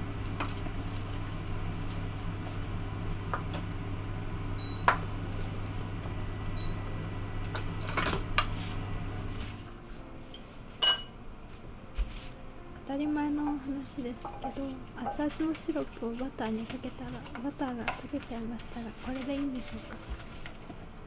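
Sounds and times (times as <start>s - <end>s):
steady low hum: 0.0s - 19.1s
pot clanking: 10.8s - 11.1s, 14.2s - 15.4s.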